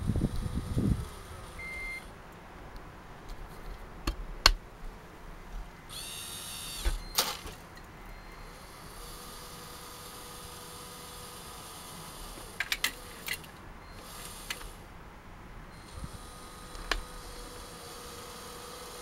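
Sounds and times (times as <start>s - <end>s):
small motors whining: 0.0s - 2.1s, 5.9s - 14.9s, 15.7s - 19.0s.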